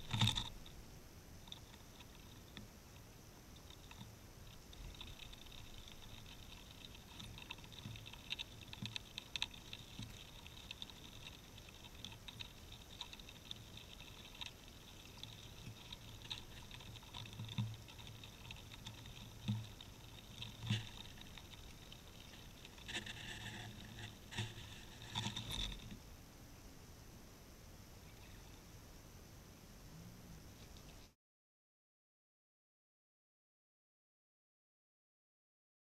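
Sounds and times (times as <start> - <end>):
squirrel clicks and scratches: 3.6 - 26.0.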